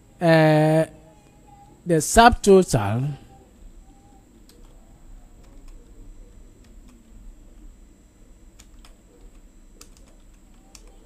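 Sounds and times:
faint high whine: 0:00.0 - 0:11.0
low steady hum: 0:00.0 - 0:11.0
keyboard keystrokes: 0:08.6 - 0:11.0.

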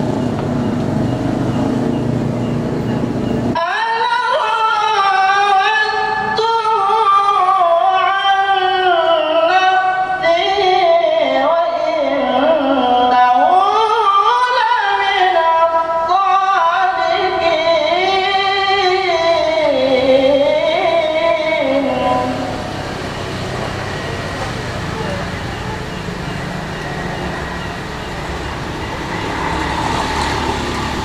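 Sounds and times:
man reciting in melismatic chant: 0:03.6 - 0:22.6.

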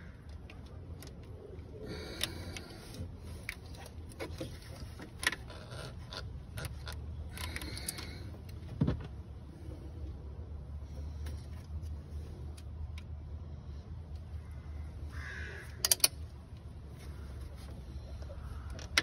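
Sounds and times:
plastic connectors clicking: 0:15.7 - 0:16.6.

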